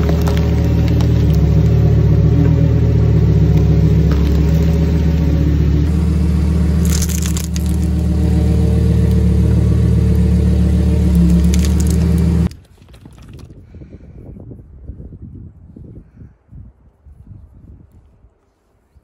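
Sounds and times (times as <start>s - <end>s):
plastic pack crackling under tyre: 0.0s - 2.0s, 3.5s - 5.1s, 6.8s - 8.0s, 11.2s - 13.6s
car engine running: 0.0s - 12.5s
faint rustle: 17.0s - 19.0s.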